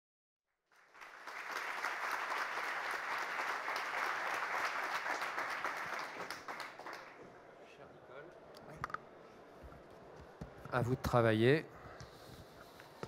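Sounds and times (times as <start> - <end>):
audience applauding: 0.7 - 7.3.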